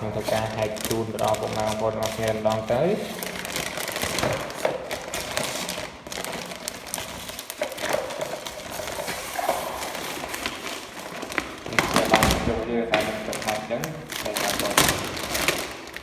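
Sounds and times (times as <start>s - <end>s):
plastic bag crinkling: 0.0s - 16.0s.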